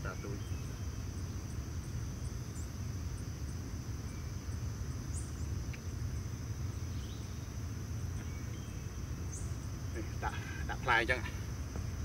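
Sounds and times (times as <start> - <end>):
bird chirps: 0.0 - 2.8, 4.0 - 10.9
insects droning: 0.0 - 12.0
faint regular ticks: 5.7 - 5.9.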